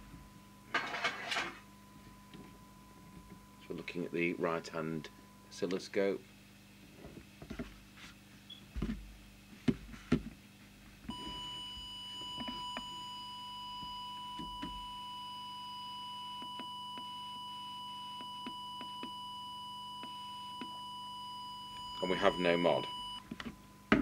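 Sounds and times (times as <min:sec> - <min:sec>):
steady test tone: 0:01.6 - 0:06.2, 0:11.1 - 0:23.2.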